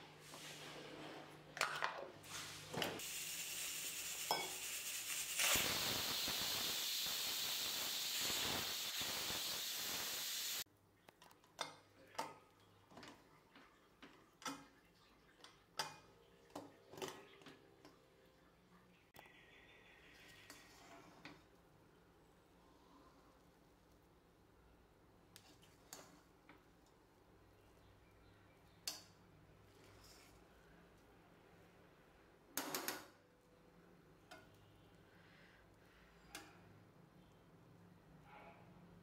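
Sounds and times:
pressure cooker steam hissing: 0:03.0 - 0:10.6.

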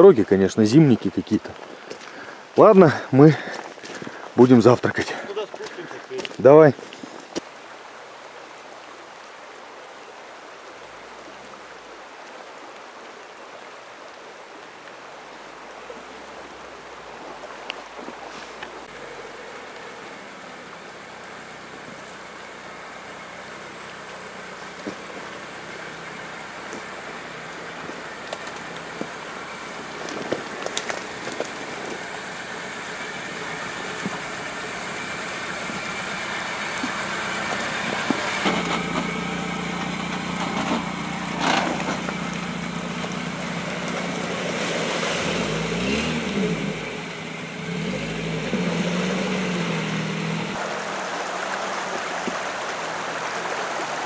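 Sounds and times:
vehicle engine revving: 0:18.8 - 0:53.7.

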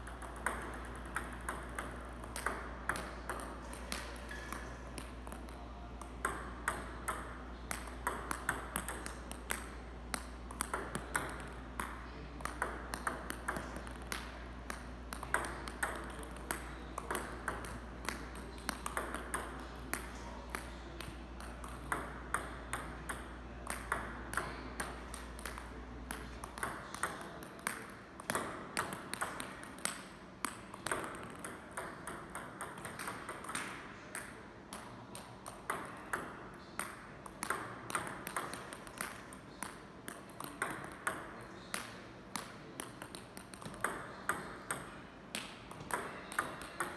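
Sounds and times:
low background hum: 0:00.0 - 0:46.9
table tennis balls clicking: 0:00.0 - 0:46.9.

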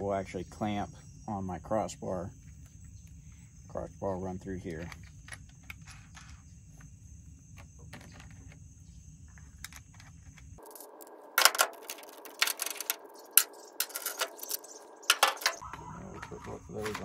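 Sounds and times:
insect trill: 0:00.0 - 0:17.0
metal hardware clinking: 0:10.6 - 0:15.6.

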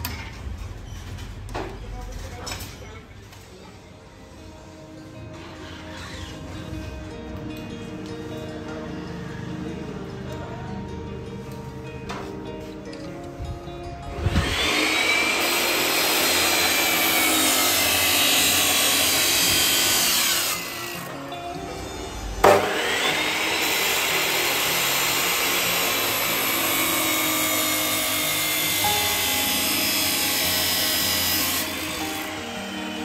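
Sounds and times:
chop saw grinding through metal: 0:14.2 - 0:33.0.

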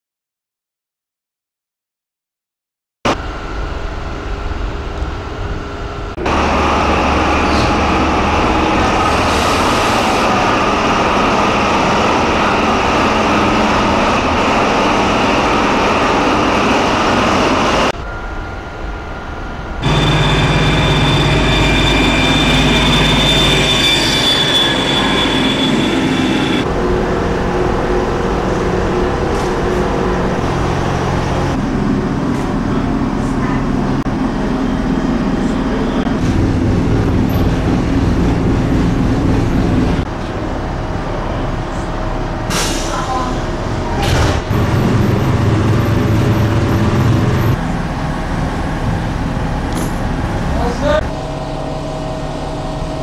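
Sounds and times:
high steady whine: 0:03.1 - 0:42.4
diesel train engine: 0:03.1 - 0:53.0.

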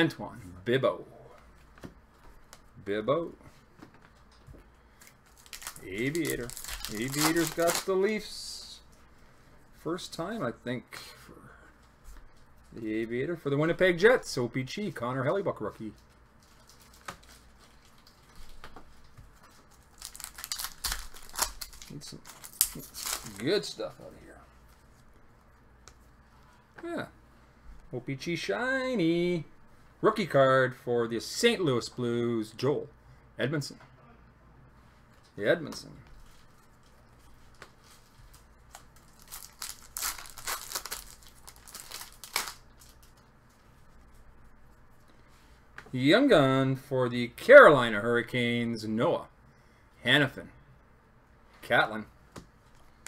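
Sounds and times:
cards rustling: 0:05.0 - 0:08.3, 0:15.9 - 0:24.9, 0:36.2 - 0:44.0.

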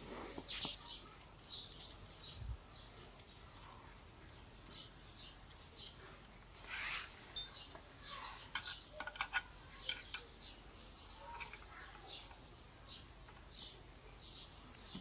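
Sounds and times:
faint birdsong: 0:00.0 - 0:15.0
spanner scraping on metal: 0:06.6 - 0:10.3.

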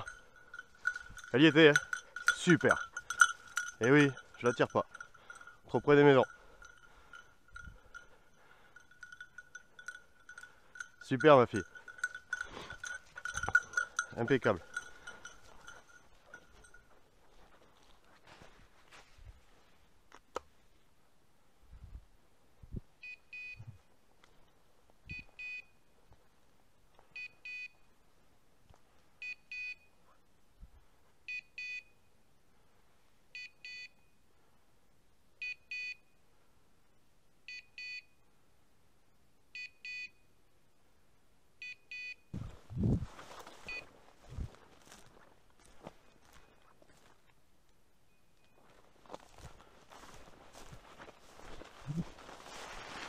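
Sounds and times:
faint footsteps: 0:00.0 - 0:19.8, 0:42.4 - 0:47.4, 0:48.4 - 0:53.0
collar double beeps: 0:23.0 - 0:23.8, 0:25.1 - 0:25.8, 0:31.3 - 0:32.0, 0:33.4 - 0:34.2, 0:35.4 - 0:36.1, 0:37.5 - 0:38.2, 0:39.6 - 0:40.2, 0:41.6 - 0:42.4
rustling through dry bracken: 0:48.6 - 0:53.0.

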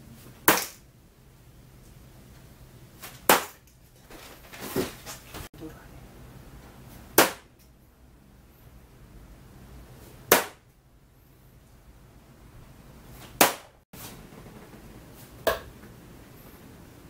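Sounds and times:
darts hitting dartboard: 0:03.1 - 0:03.6, 0:07.1 - 0:07.6, 0:10.3 - 0:10.6, 0:13.2 - 0:13.8, 0:15.4 - 0:15.7.

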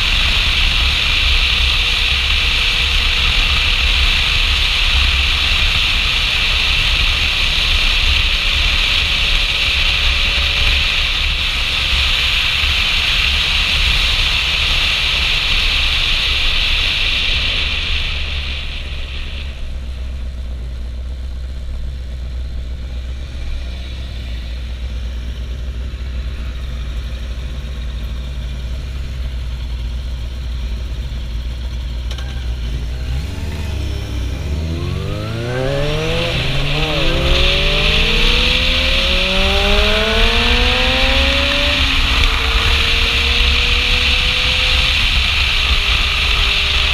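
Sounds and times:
motorcycle engine: 0:00.0 - 0:46.9
motorcycle engine revving: 0:00.0 - 0:46.9
wind rush: 0:32.8 - 0:46.9.

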